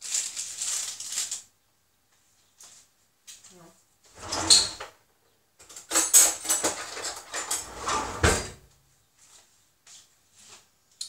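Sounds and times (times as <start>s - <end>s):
kitchen rattling and knocking: 4.1s - 5.0s, 5.6s - 8.7s.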